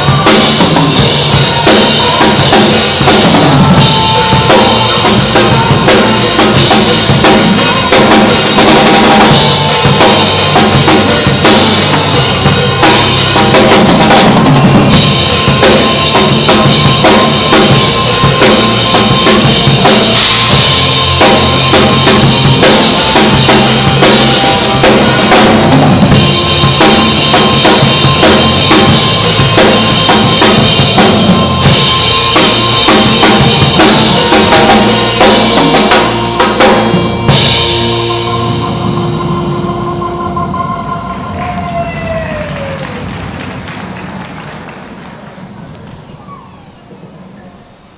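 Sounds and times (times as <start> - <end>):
drum kit playing groove: 0.0 - 41.8.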